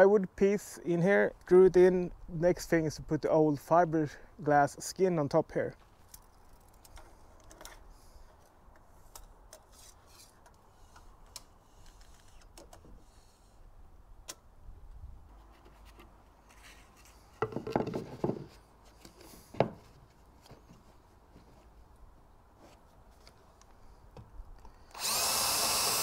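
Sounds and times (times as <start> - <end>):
wooden knocks: 17.4 - 18.5.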